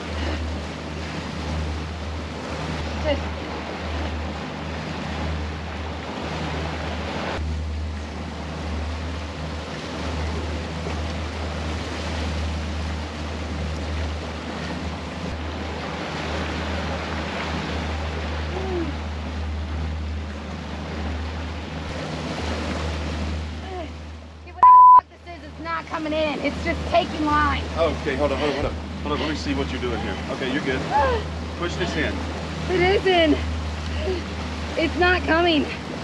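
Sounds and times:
boat wake churning: 0.0 - 36.0
outboard motors humming: 0.0 - 36.0.

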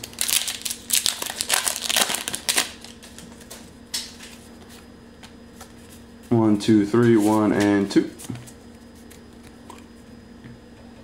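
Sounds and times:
foil wrapper tearing and crinkling: 0.0 - 3.2.

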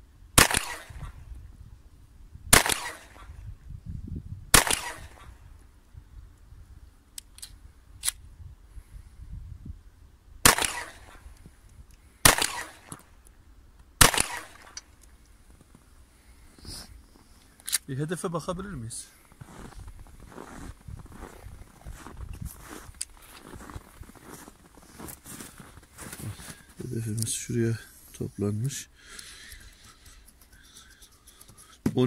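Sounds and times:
pistol shots: 0.4 - 1.2, 2.5 - 3.4, 4.5 - 5.4, 10.4 - 11.2, 12.2 - 13.0, 14.0 - 14.8.

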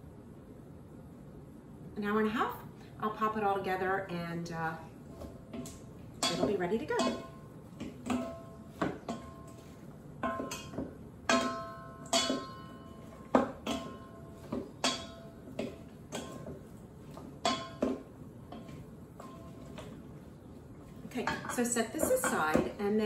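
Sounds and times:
wooden servers knocking metal bowl: 5.5 - 20.0, 21.1 - 23.0
bowl ringing: 6.2 - 16.5.

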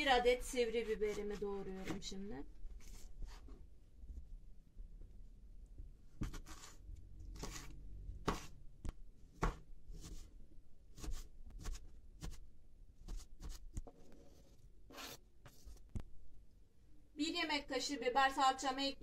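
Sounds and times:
knife chopping on plastic board: 6.2 - 6.8, 7.4 - 10.3, 10.9 - 12.4
knife scraping cutting board: 6.2 - 6.8, 7.4 - 8.6, 9.4 - 10.3, 13.1 - 15.8.

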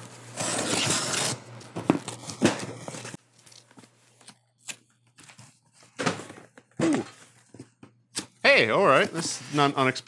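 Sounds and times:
cardboard tearing: 0.0 - 3.6.

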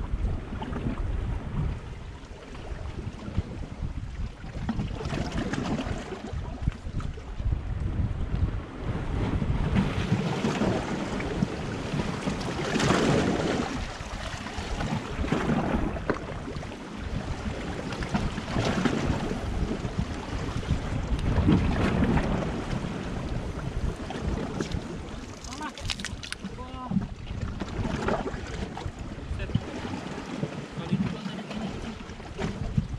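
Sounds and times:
wind rumbling on microphone: 0.0 - 32.9
waves washing against rocks: 8.8 - 32.9.

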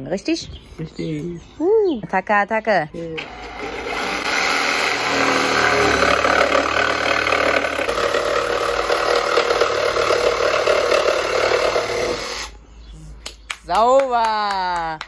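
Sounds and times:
jigsaw cutting chipboard: 3.2 - 12.5.

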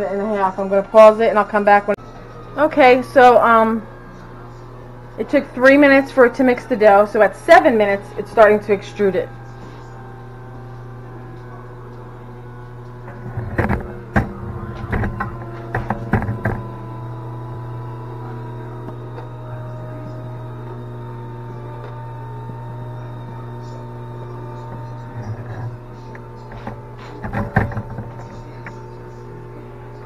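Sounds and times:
pasta maker motor humming: 2.0 - 30.0
knocks and clicks: 13.1 - 16.8, 26.5 - 28.4.

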